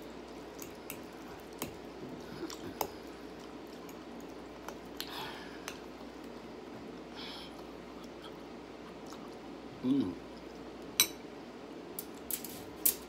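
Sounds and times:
chewing with wet mouth sounds: 0:00.0 - 0:09.6.

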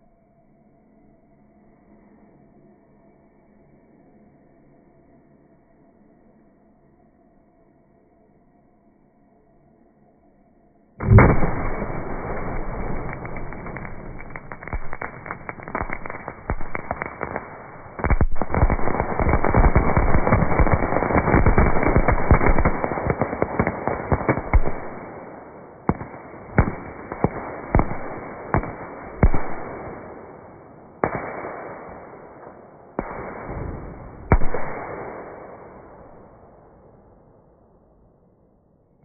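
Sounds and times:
fireworks crackling and banging: 0:11.0 - 0:36.3.

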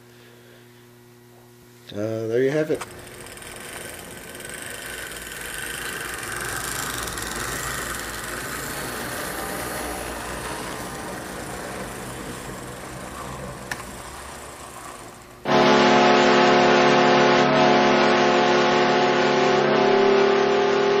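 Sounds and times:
model train motor hum and rattle: 0:01.9 - 0:15.8.

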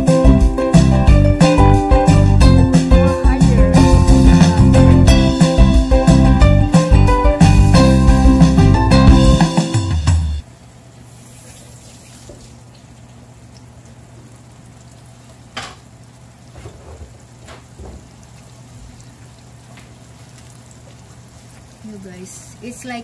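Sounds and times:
fish frying in oil: 0:10.4 - 0:23.0.

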